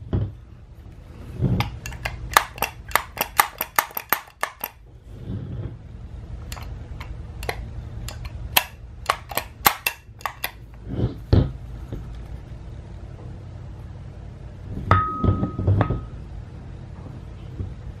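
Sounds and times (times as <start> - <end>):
low steady hum: 0.0 - 18.0
clicks and taps on metal and plastic: 1.6 - 4.8, 6.5 - 10.6.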